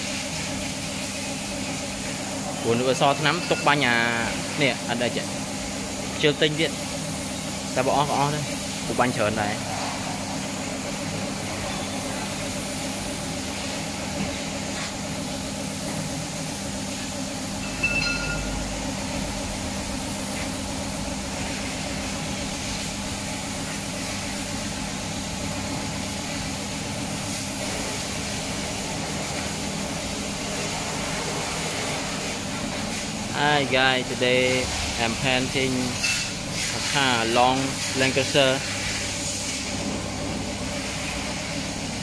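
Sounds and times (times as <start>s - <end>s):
air compressor humming: 0.0s - 42.0s
short high beep: 17.6s - 18.5s.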